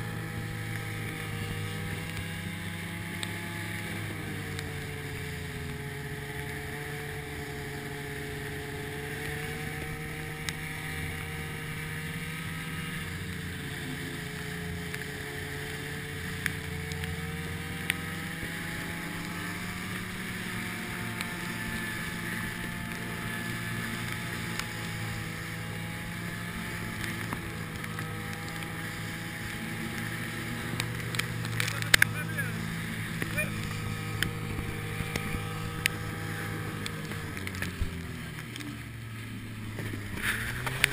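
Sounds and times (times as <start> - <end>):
snowmobile engine running: 0.0 - 40.9
faint clicks: 29.9 - 32.1.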